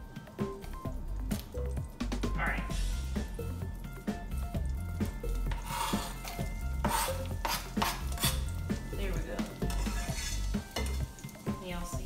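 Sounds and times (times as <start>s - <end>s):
onion sizzling in oil: 2.7s - 12.0s
knife scraping cutting board: 5.5s - 8.6s, 9.7s - 10.5s
knife tapping against pan: 6.8s - 8.4s.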